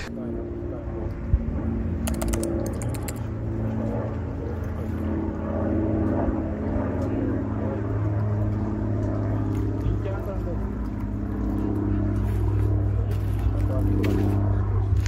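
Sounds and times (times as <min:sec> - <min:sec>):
drone propellers whirring: 0:00.0 - 0:09.1.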